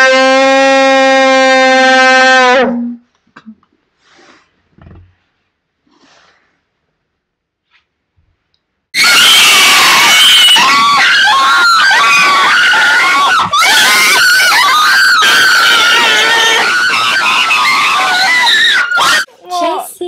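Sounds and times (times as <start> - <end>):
people screaming: 9.0 - 19.3.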